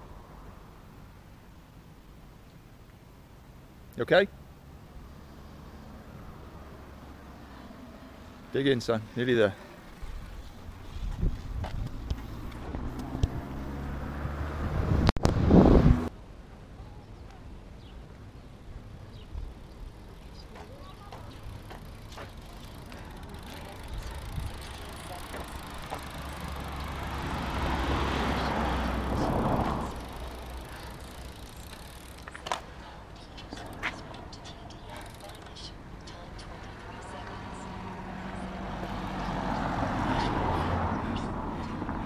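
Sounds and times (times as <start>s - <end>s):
wind buffeting microphone: 10.0s - 13.7s, 14.3s - 16.1s, 21.1s - 30.1s.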